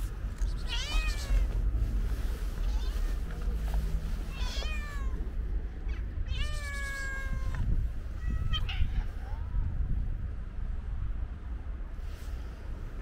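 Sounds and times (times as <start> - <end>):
cat meowing: 0.4 - 1.6, 2.6 - 3.3, 4.3 - 5.3, 5.9 - 9.6.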